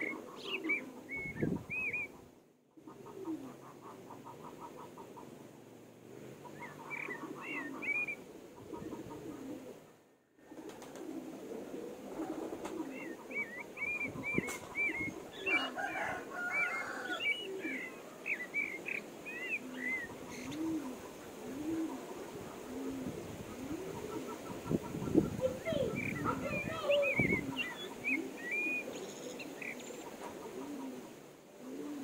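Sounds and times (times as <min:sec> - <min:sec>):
pigeons cooing: 0:00.0 - 0:32.0.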